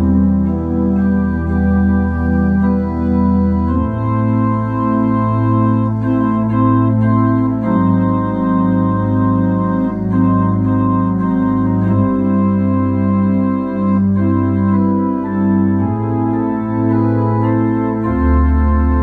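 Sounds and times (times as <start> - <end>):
organ-like keyboard chords: 0.0 - 19.0.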